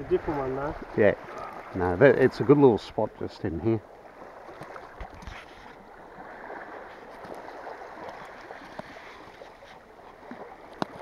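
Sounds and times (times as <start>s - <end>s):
small waves lapping: 0.0s - 11.0s.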